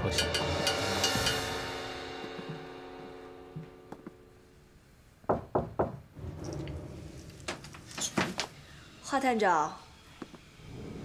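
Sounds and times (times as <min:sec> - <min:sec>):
knocking on a glass-paned door: 0:05.3 - 0:06.0.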